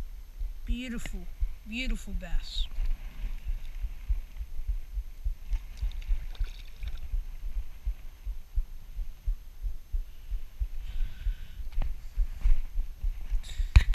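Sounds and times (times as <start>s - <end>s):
low thumping rumble: 0.0s - 13.9s.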